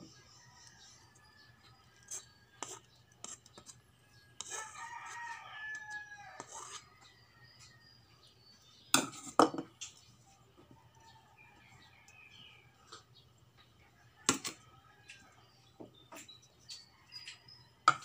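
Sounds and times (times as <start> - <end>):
rice paddle scraping metal pot: 2.0 - 3.8, 4.4 - 5.3, 6.2 - 7.0
rooster crowing: 4.4 - 7.8.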